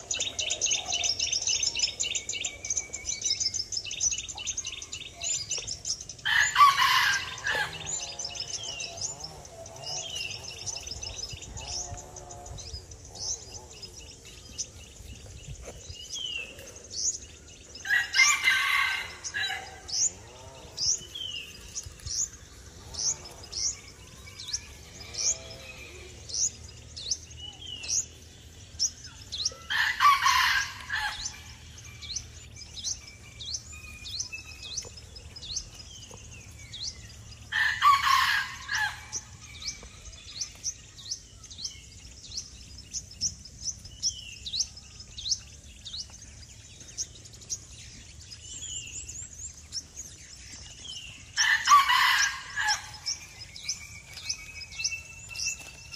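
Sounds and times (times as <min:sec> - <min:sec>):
bird chirping: 0:00.0 - 0:55.9
rooster crowing: 0:06.3 - 0:08.0, 0:51.4 - 0:53.0.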